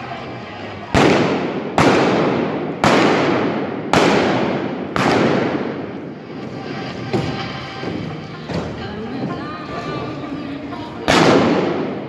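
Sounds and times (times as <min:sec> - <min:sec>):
revolver shots with echo: 0:00.9 - 0:06.0, 0:11.1 - 0:12.0.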